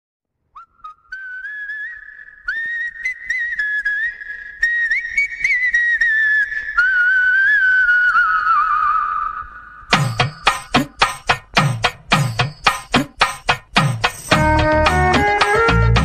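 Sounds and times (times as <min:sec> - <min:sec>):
whistled tune: 0:00.6 - 0:11.3, 0:14.2 - 0:16.0.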